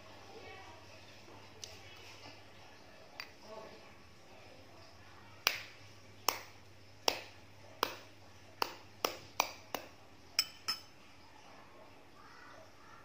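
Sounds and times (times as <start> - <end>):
metal spoon tapping: 8.6 - 11.0.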